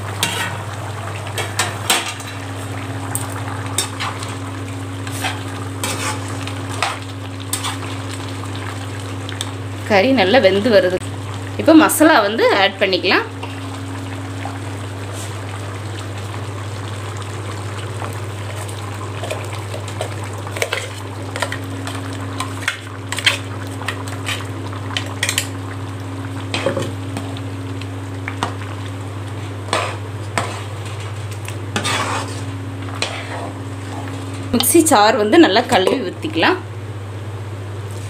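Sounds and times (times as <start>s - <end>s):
curry sizzling: 0.0s - 36.8s
metal spatula scraping a pan: 0.2s - 0.6s, 5.1s - 7.8s, 31.7s - 34.1s.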